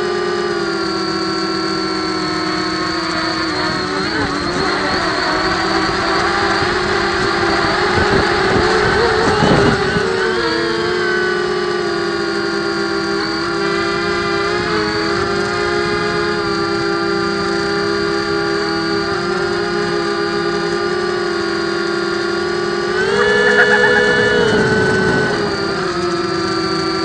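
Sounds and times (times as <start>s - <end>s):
quadcopter motors whining: 0.0s - 27.0s.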